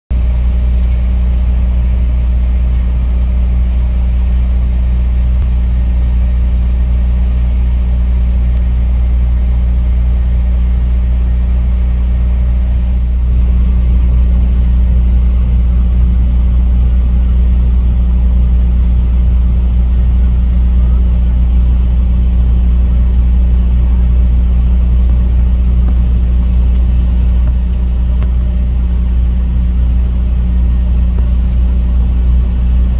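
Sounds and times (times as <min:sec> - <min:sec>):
vehicle engine idling: 0:00.1 - 0:32.9.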